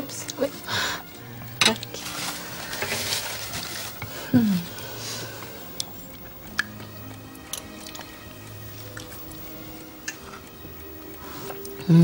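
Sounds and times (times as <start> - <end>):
soup being ladled and stirred: 5.0 - 11.7.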